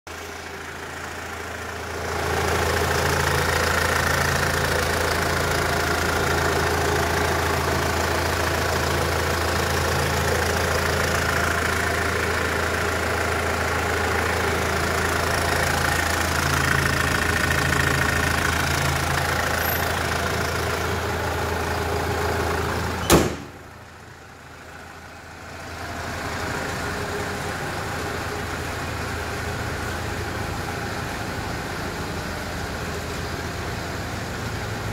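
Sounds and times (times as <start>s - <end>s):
diesel engine idling: 0.1s - 34.9s
car bonnet slamming shut: 23.0s - 23.6s.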